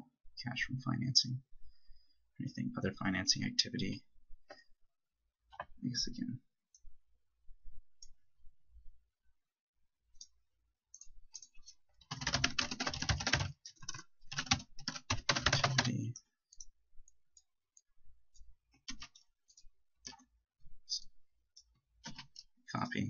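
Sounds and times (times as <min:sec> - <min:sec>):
computer keyboard typing: 0:11.0 - 0:16.7, 0:18.8 - 0:20.3, 0:22.0 - 0:22.4.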